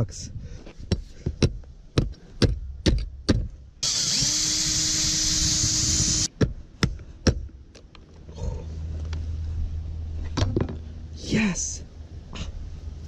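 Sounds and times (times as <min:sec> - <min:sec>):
power tool running: 0:03.8 - 0:06.3.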